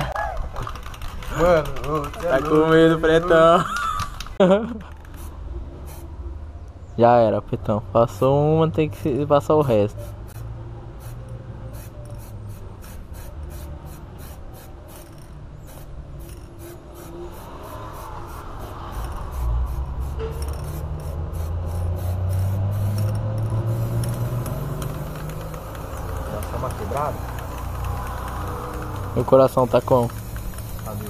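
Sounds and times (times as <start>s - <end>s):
spray paint can hissing: 4.9s - 6.1s, 9.9s - 31.0s.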